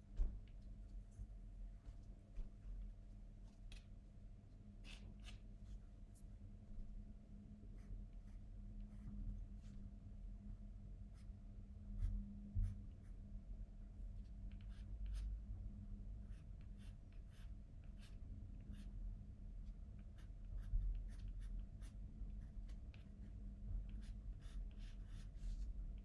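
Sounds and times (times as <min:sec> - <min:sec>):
low steady hum: 0:00.0 - 0:26.0
pencil scratching on paper: 0:14.5 - 0:15.3, 0:16.2 - 0:18.9, 0:20.0 - 0:22.5, 0:23.9 - 0:25.7.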